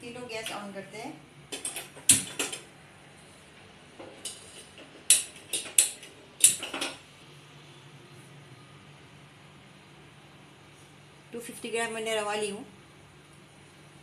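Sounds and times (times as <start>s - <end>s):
metallic clicks at gas stove: 4.2s - 7.0s.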